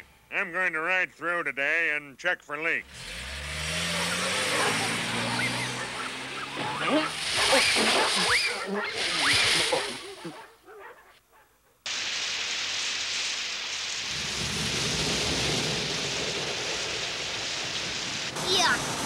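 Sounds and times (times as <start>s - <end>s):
water jets spraying hiss: 3.0s - 10.4s, 11.9s - 19.0s
cartoon commotion with sliding squeals: 3.9s - 10.4s
low rumble of car wash: 11.9s - 19.0s.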